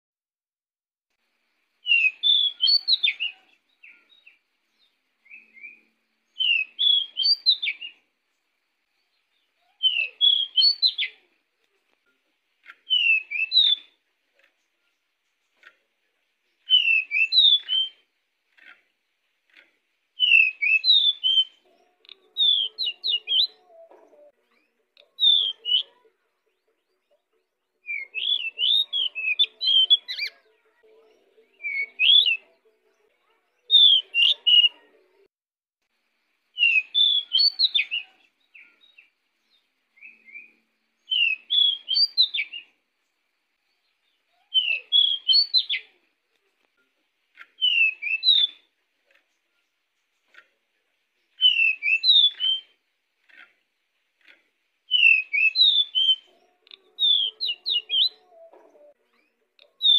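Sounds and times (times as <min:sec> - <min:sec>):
bird singing whistled phrases: 0:01.8 - 0:04.4, 0:05.2 - 0:08.0, 0:09.7 - 0:11.2, 0:12.8 - 0:14.0, 0:16.6 - 0:18.1, 0:20.2 - 0:23.8, 0:25.1 - 0:26.0, 0:27.8 - 0:30.4, 0:31.6 - 0:32.4, 0:33.7 - 0:34.7, 0:36.6 - 0:39.1, 0:40.0 - 0:42.8, 0:44.3 - 0:46.0, 0:47.5 - 0:48.7, 0:51.3 - 0:52.8, 0:54.9 - 0:58.5, 0:59.1 - 0:59.9.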